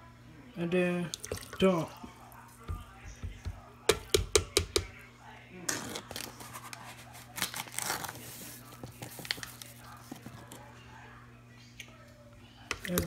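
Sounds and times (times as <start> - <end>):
crinkly rustling: 5.9 - 10.6.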